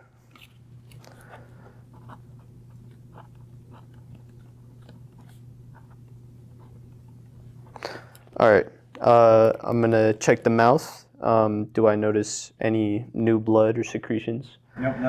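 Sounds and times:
low steady hum: 0:00.0 - 0:15.0
pen scratching on paper: 0:01.9 - 0:06.9.

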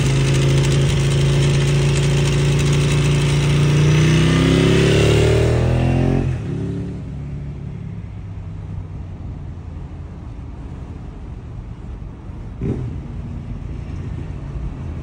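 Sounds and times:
motorcycle engine revving: 0:00.0 - 0:07.1, 0:12.6 - 0:13.1
vehicle rumble: 0:00.0 - 0:15.0.

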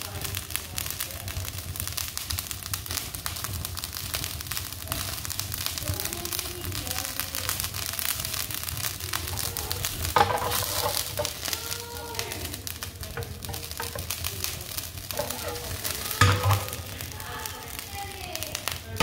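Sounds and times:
broth bubbling and sizzling: 0:00.0 - 0:19.0.

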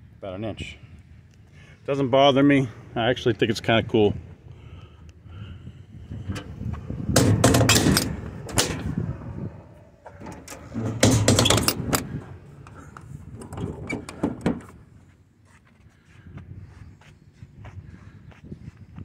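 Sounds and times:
metal doors shutting and latching: 0:06.2 - 0:14.8.

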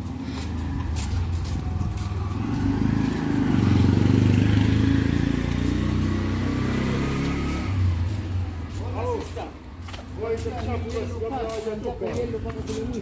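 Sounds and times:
small vehicle engine passing: 0:00.0 - 0:09.3.

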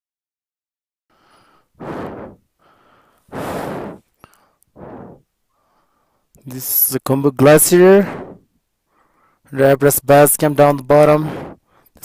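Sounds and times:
person breathing close to microphone: 0:01.1 - 0:06.4, 0:07.8 - 0:09.5, 0:11.1 - 0:12.0.

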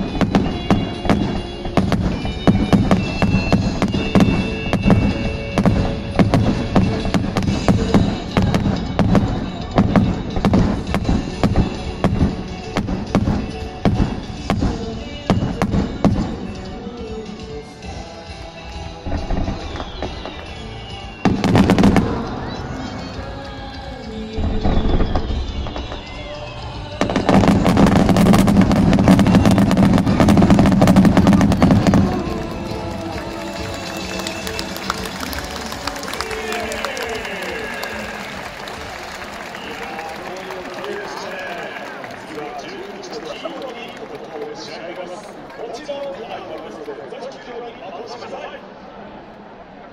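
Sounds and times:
fireworks bursting: 0:00.0 - 0:16.9, 0:18.8 - 0:43.3
music playing: 0:00.0 - 0:45.6.

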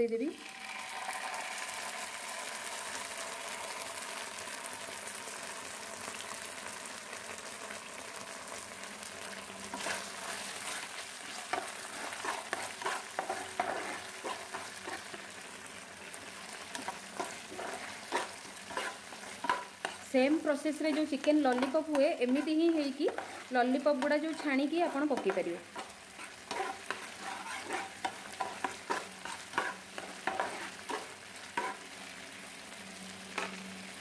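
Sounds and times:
hot oil sizzling in a frying pan: 0:00.0 - 0:34.0
spatula scraping a pan: 0:09.7 - 0:15.5, 0:16.4 - 0:32.0.

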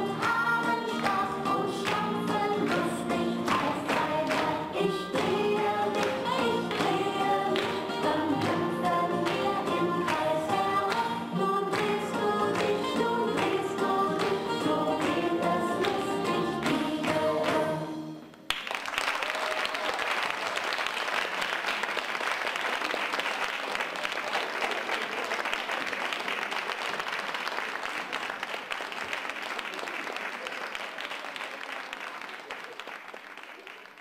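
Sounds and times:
music: 0:00.0 - 0:18.5
audience applause: 0:18.5 - 0:34.0.

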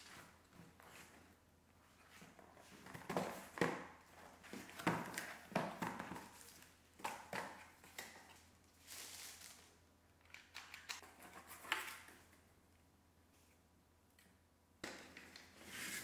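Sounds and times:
tissue paper rustling: 0:08.7 - 0:09.8.

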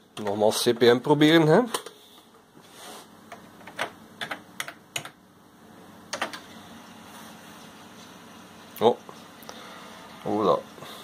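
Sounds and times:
computer keyboard keystrokes: 0:03.3 - 0:05.2.

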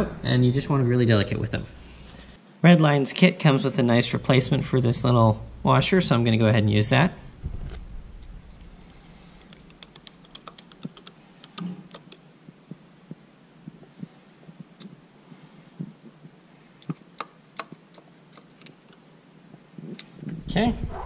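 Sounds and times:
screwdriver clicking on metal: 0:09.4 - 0:12.2.

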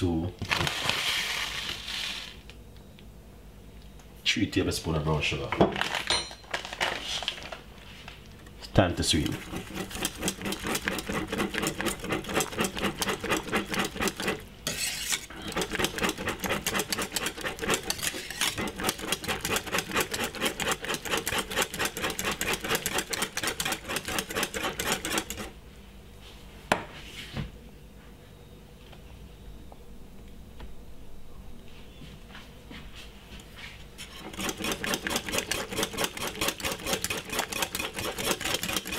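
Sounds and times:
whisk rattling and scraping pan: 0:09.1 - 0:25.6, 0:34.0 - 0:38.9.

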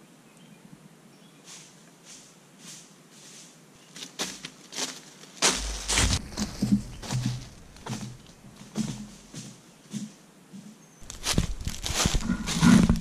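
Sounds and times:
footsteps crunching dry leaves: 0:01.4 - 0:10.1, 0:11.0 - 0:13.0
low rumble: 0:05.6 - 0:08.6.

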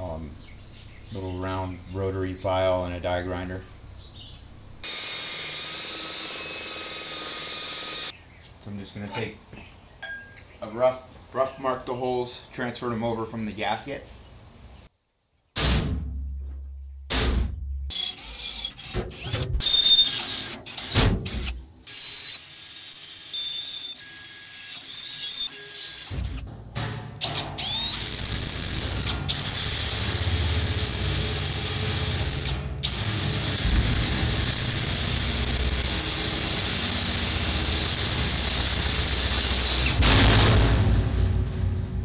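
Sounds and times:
drill squealing into steel: 0:17.9 - 0:26.4, 0:27.3 - 0:40.0
handling knocks and clunks: 0:26.1 - 0:27.6.

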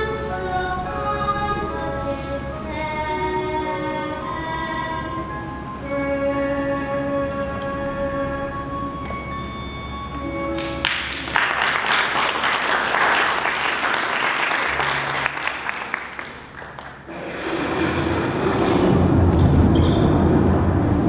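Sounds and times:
music playing: 0:00.0 - 0:19.7
audience applauding: 0:10.6 - 0:18.6.

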